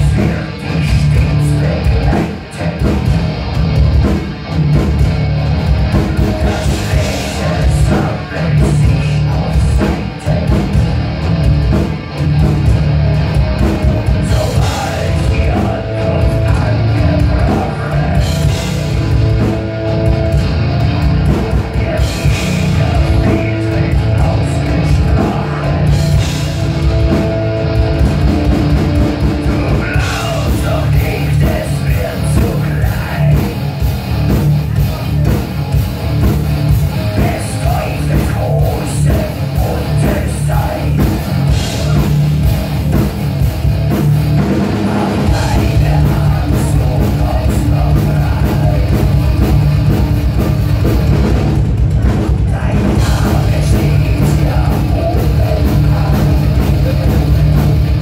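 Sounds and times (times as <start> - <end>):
drums: 0.0 - 58.0
electric guitar: 0.0 - 58.0
person singing: 6.4 - 10.7, 13.9 - 18.9, 21.2 - 26.3, 29.4 - 33.6, 37.1 - 42.2, 44.7 - 49.6, 52.3 - 57.6.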